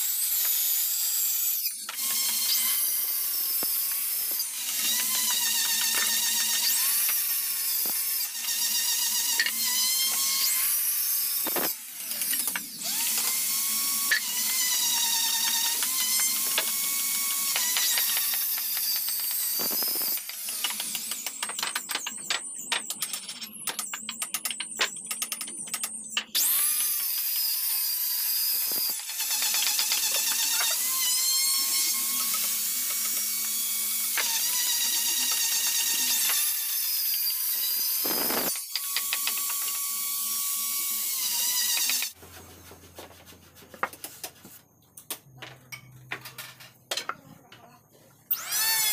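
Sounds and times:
circular saw cutting wood: 0.0 - 22.4, 26.4 - 42.2, 48.3 - 48.9.

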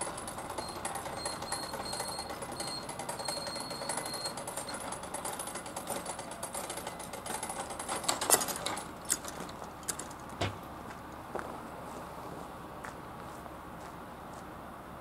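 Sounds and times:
barrier mechanism rattling: 0.3 - 10.7
barrier clunk: 8.0 - 10.8.

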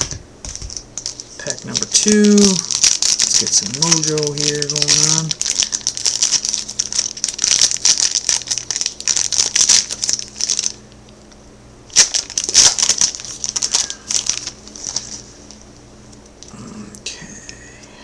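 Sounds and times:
foil wrapper crinkling: 0.4 - 10.8, 11.9 - 15.7.

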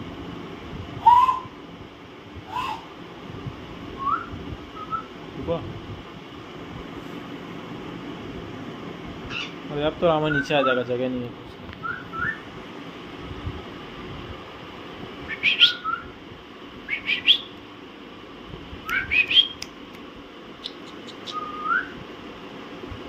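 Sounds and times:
parakeets whistled calls: 9.3 - 9.6, 10.2 - 10.9, 15.3 - 16.1, 16.9 - 17.5, 18.9 - 19.6, 20.6 - 21.9.

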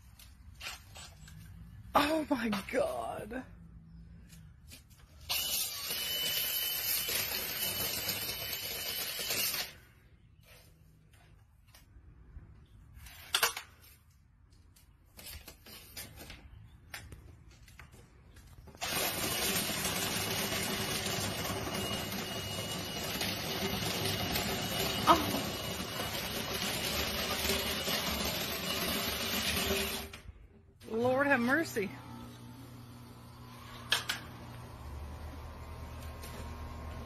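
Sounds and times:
cordless drill spinning brush: 4.9 - 10.7, 18.7 - 30.2.

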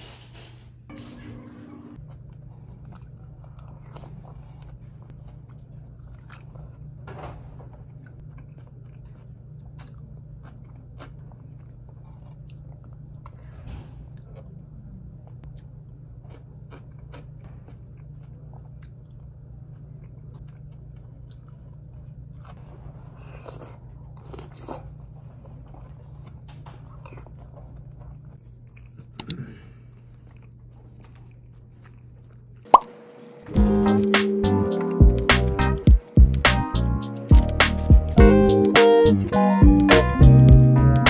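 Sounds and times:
chewing crunchy food: 2.0 - 32.9, 37.0 - 38.2
low hum: 32.7 - 41.0.

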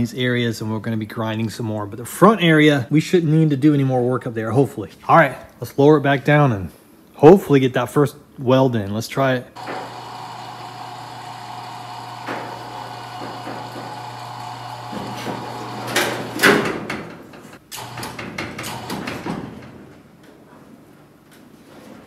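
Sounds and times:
steady hum: 9.6 - 18.2
sheet metal body clunking: 10.8 - 20.2.

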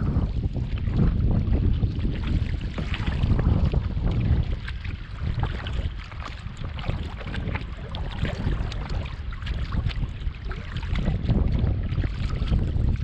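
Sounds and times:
small irregular splashes and ticks: 0.0 - 13.0
water splashing around canoe: 0.0 - 13.0
wind rumbling on microphone: 0.0 - 13.0.

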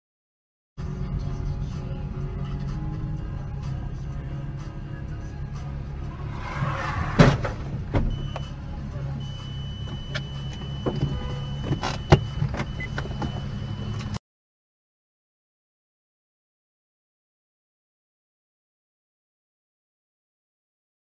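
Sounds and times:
car engine humming: 0.8 - 14.2
loud crash bang: 6.4 - 7.6
steady high beep: 8.1 - 8.6, 9.2 - 14.2.

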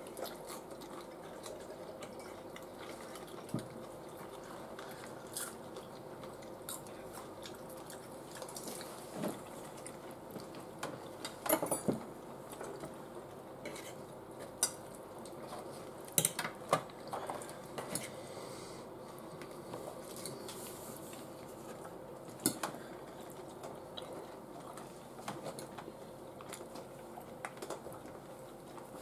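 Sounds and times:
chewing: 0.0 - 11.4, 19.4 - 29.0.

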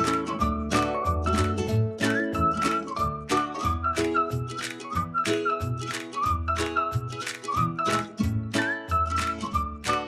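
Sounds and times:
whistled melody: 0.0 - 10.0.

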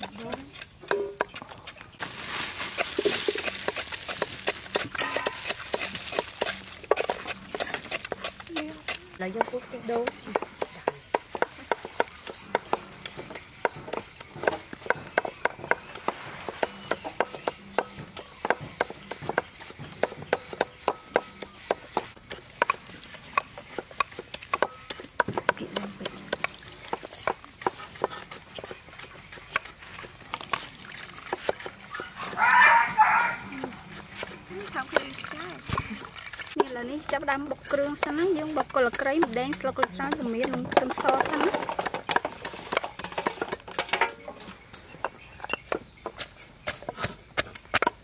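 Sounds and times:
hands squelching wet coconut: 0.0 - 43.8
liquid splashing and trickling: 26.2 - 32.5, 33.2 - 36.6.

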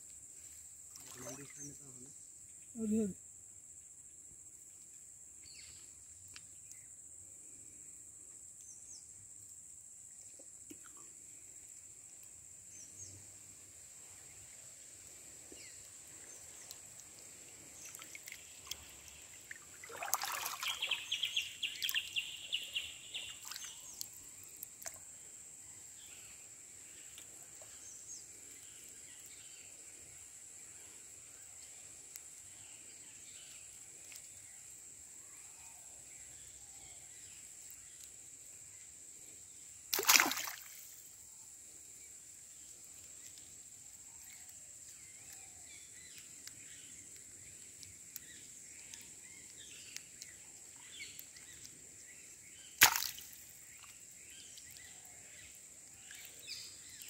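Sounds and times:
water sloshing and splashing: 17.8 - 21.1, 39.9 - 40.9.

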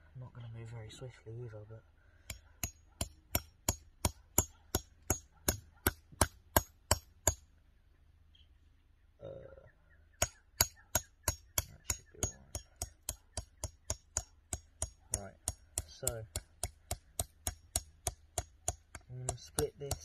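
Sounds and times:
hammer tapping knife spine: 10.2 - 20.0.

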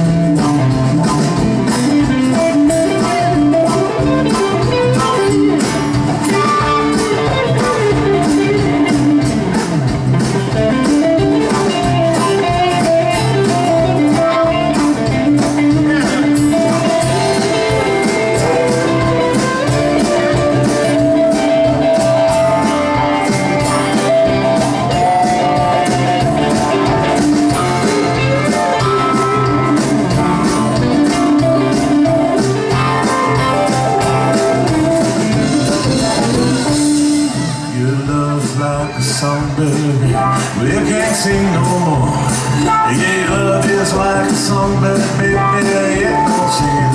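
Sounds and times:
live rock band playing: 0.0 - 46.9.

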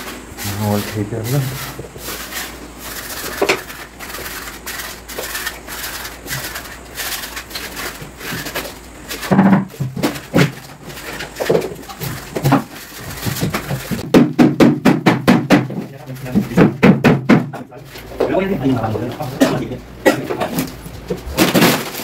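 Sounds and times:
paint scraping off a wall: 0.0 - 14.1
scattered knocks: 11.5 - 18.4.

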